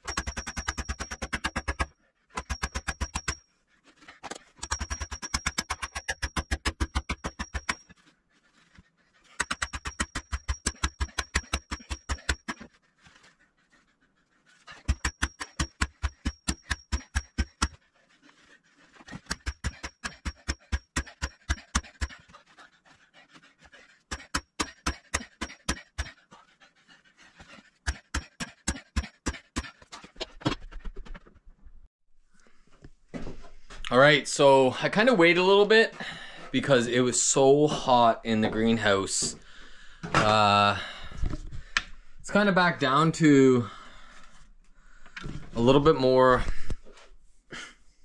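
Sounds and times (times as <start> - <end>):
rapid metal strikes on pipe: 0.0 - 3.4, 4.6 - 7.8, 9.4 - 12.6, 14.9 - 17.8.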